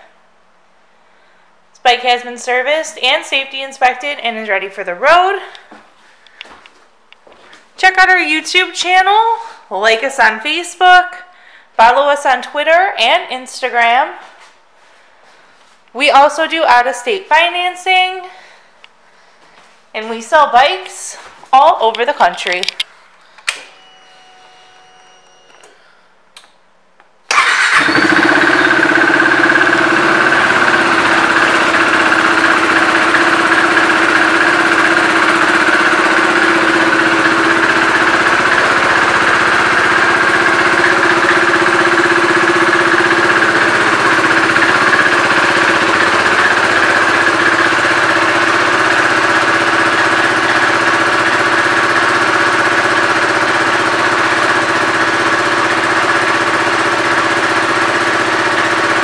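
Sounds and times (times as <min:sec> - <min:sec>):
motorcycle engine starting and idling: 0:27.3 - 0:59.0.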